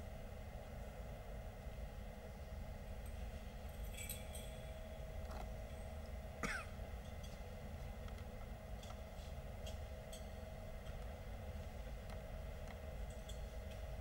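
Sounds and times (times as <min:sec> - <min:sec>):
steady low hum: 0:00.0 - 0:14.0
metallic chain clinks: 0:03.1 - 0:06.0.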